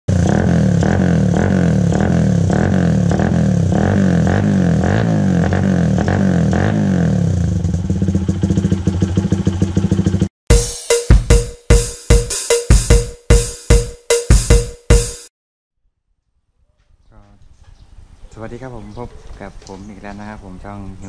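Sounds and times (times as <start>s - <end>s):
motorcycle engine running loud: 0.1s - 10.3s
drum beat: 9.2s - 15.3s.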